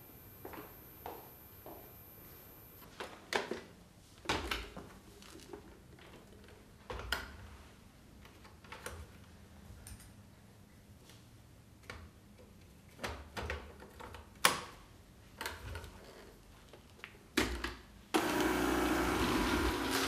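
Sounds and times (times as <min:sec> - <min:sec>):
electric broom motor running: 0:00.0 - 0:02.8, 0:18.2 - 0:20.0.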